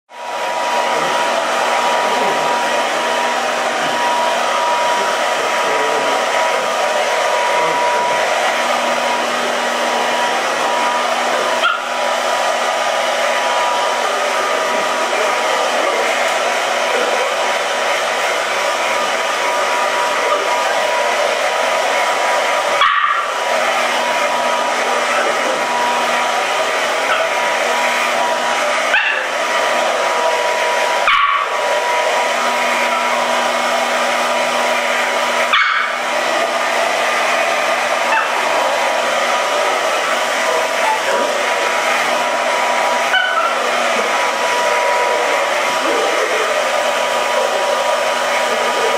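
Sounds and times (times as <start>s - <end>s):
hair dryer blowing: 0.1s - 48.9s
puppy barking: 11.6s - 12.0s, 22.8s - 23.4s, 27.0s - 27.5s, 28.9s - 29.7s, 31.0s - 31.6s, 35.4s - 36.1s, 38.0s - 38.6s, 43.0s - 43.7s.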